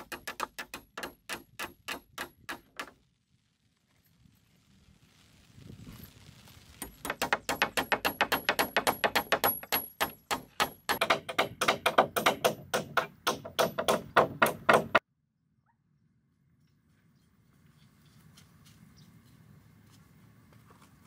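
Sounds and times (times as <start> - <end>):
rapid sharp strikes on wood: 0.0 - 2.9, 6.8 - 15.0.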